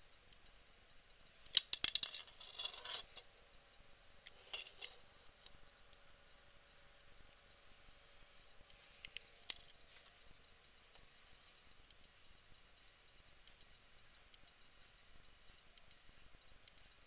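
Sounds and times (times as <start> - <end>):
glass jar clicks and scrapes: 1.6 - 3.3, 4.3 - 5.5.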